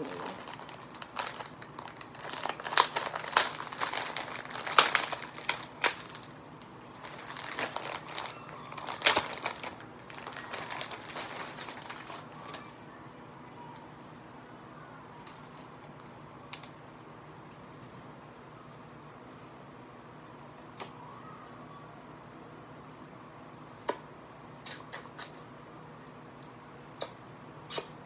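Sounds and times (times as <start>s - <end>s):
plastic packaging crinkling: 0.0s - 12.8s.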